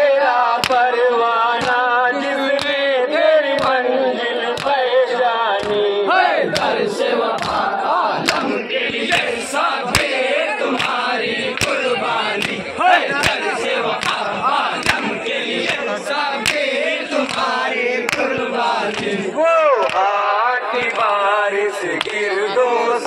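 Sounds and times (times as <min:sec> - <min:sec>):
crowd of men chanting: 0:00.0 - 0:23.0
hands slapping chests: 0:00.6 - 0:00.8, 0:01.6 - 0:01.8, 0:02.5 - 0:02.8, 0:03.6 - 0:03.8, 0:04.5 - 0:04.8, 0:05.6 - 0:05.8, 0:06.5 - 0:19.2, 0:19.8 - 0:20.1, 0:22.0 - 0:22.2
men shouting: 0:11.8 - 0:17.0, 0:19.3 - 0:20.5.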